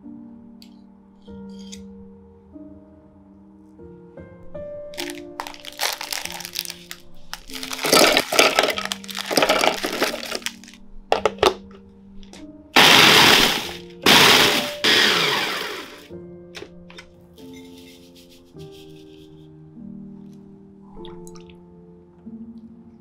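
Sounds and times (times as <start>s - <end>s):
plastic wrappers crinkling: 5.0s - 11.6s
electric blender grinding: 7.6s - 10.5s, 12.8s - 16.1s.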